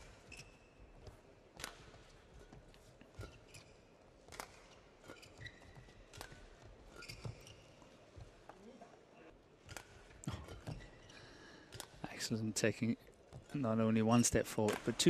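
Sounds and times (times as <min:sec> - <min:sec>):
shoes squeaking on court: 0:00.0 - 0:08.7, 0:09.6 - 0:11.2
rackets striking shuttlecock: 0:04.3 - 0:05.4, 0:06.1 - 0:07.2.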